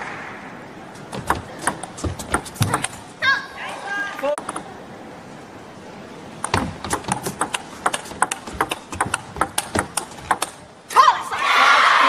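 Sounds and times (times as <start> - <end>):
ball clicking off bats: 1.1 - 3.0, 4.4 - 4.7, 6.4 - 10.7
ball bouncing on table: 1.2 - 3.0, 6.4 - 10.6.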